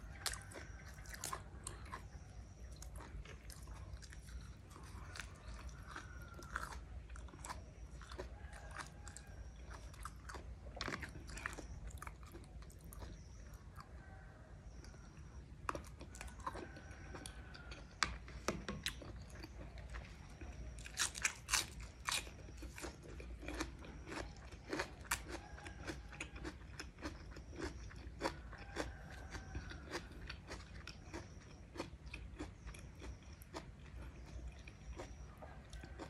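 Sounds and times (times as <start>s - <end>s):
person chewing with wet clicks: 0.0s - 36.0s.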